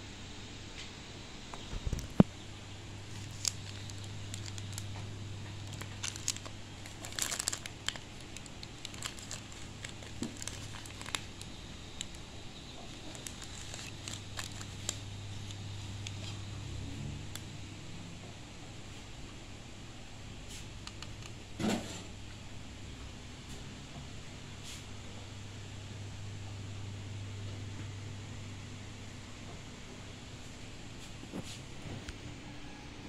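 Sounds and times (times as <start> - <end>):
steady low hum: 0.0 - 33.0
plastic bags crinkling: 3.0 - 16.4.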